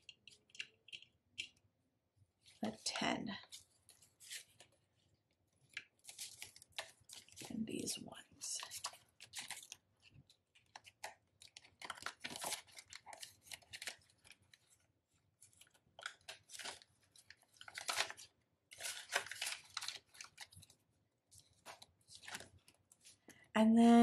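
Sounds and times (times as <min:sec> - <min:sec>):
plastic binder pockets crinkling: 0:05.6 - 0:07.5, 0:08.6 - 0:23.2
paper banknotes rustling: 0:05.9 - 0:07.5, 0:08.4 - 0:20.8, 0:21.4 - 0:23.2.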